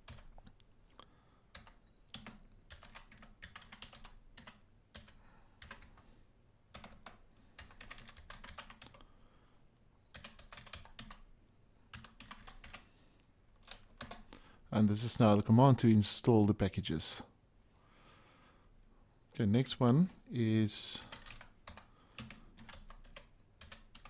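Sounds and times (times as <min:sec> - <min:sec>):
faint typing on keyboard: 0:00.0 - 0:14.4, 0:20.8 - 0:24.0.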